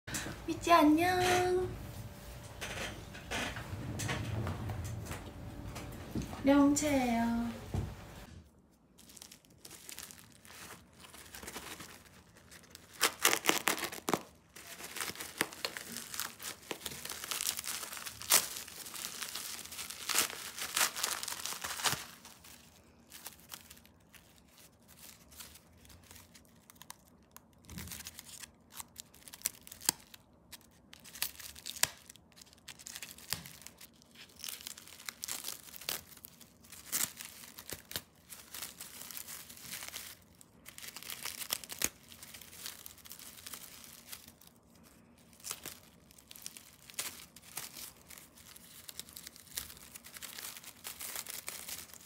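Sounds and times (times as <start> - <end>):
paper crinkling: 6.5 - 52.0
paper and tape tearing: 12.7 - 22.4.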